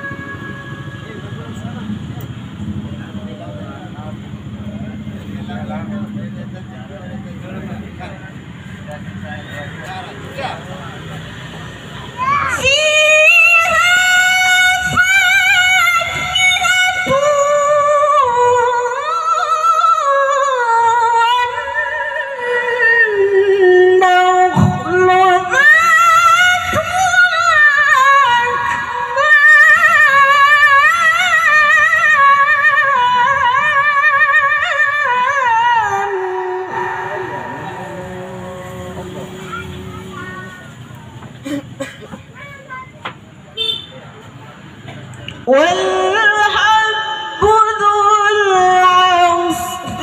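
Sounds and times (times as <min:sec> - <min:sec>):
woman reciting melodically into microphone: 0:12.2 - 0:40.9, 0:45.4 - 0:50.0.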